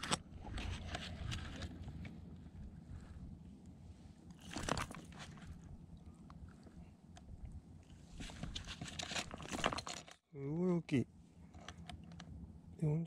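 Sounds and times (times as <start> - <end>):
crunchy rustling and scraping: 0.0 - 5.8, 7.9 - 10.2.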